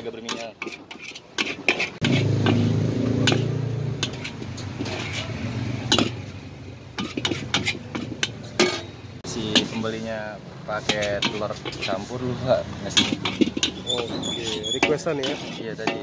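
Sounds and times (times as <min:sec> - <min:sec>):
metal spatula scraping a wok: 0:00.0 - 0:16.0
vehicle engine passing: 0:02.0 - 0:09.4, 0:10.4 - 0:14.6.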